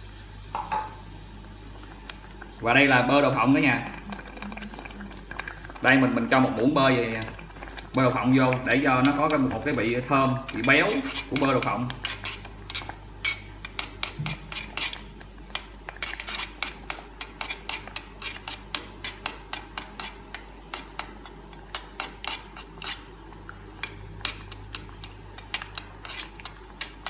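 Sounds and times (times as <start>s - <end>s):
metal spoon scraping a pot: 8.8s - 21.1s, 21.7s - 23.1s, 23.8s - 27.0s.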